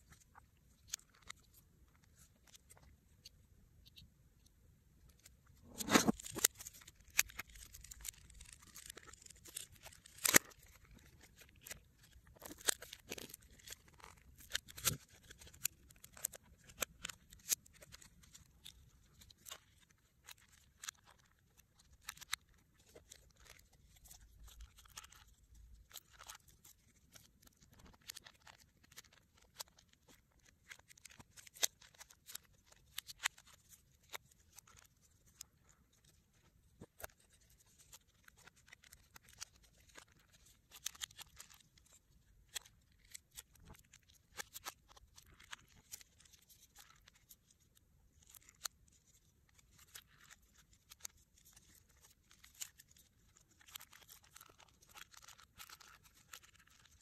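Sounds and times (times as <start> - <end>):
hands handling smartphone parts: 5.1 - 18.3.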